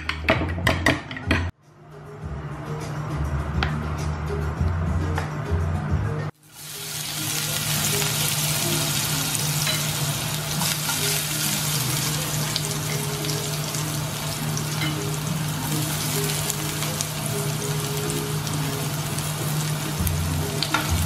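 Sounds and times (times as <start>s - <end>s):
garlic sizzling in hot oil: 6.4s - 21.0s.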